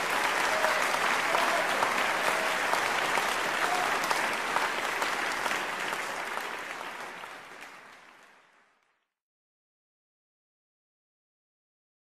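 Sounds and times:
audience applause and cheering: 0.0s - 9.1s.

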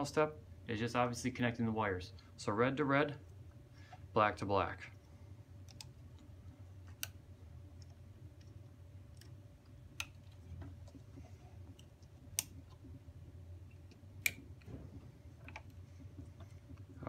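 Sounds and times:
low steady hum: 0.0s - 17.0s
connectors clicking onto terminals: 5.6s - 7.2s, 7.8s - 11.0s, 11.7s - 12.9s.

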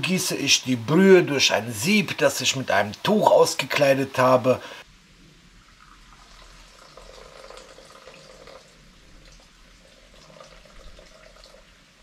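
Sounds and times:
broth dripping into a bowl: 5.6s - 11.9s.

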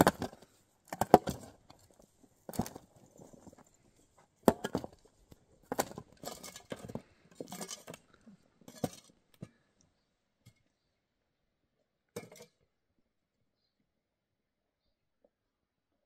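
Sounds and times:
metal shovels scraping dirt: 0.0s - 9.6s
shovel clinking on stones: 5.8s - 8.0s.

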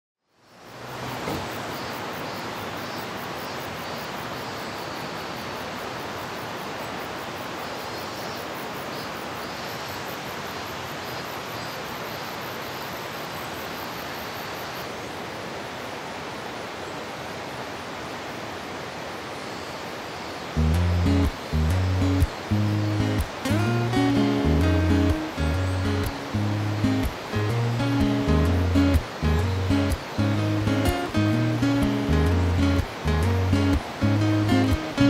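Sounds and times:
rushing stream water: 0.4s - 35.0s
acoustic guitar music: 20.6s - 35.0s.

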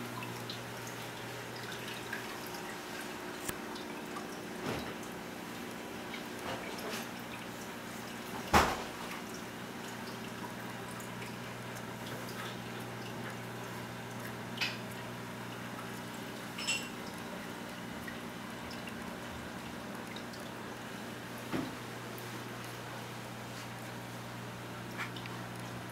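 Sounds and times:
water drops plinking: 16.5s - 17.3s.

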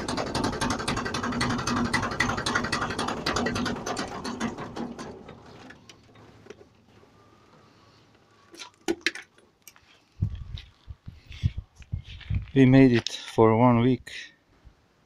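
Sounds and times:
conveyor metallic rattling clatter: 0.0s - 6.4s.

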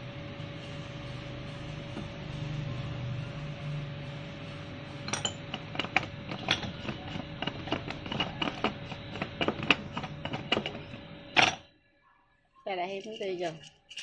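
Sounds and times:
utensil clinking in metal bowl: 5.1s - 11.6s, 12.9s - 14.0s
utensil scraping bowl: 5.2s - 11.6s, 12.9s - 14.0s.

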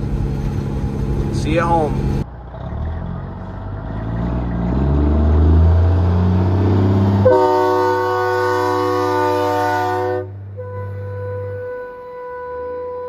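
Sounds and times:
truck diesel engine: 0.0s - 13.0s
multi-note air horn: 7.2s - 13.0s.

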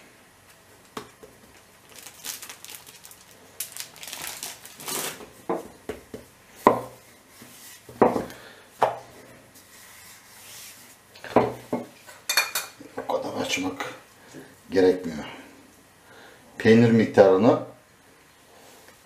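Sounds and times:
hands patting dough: 0.4s - 2.0s, 5.2s - 10.9s
plastic bag rustling: 1.4s - 5.5s.

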